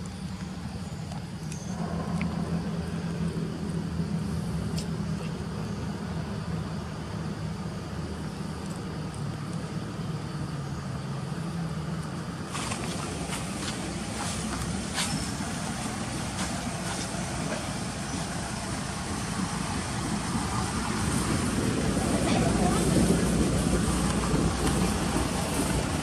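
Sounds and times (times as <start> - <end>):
vehicle engine humming: 0.0 - 26.0.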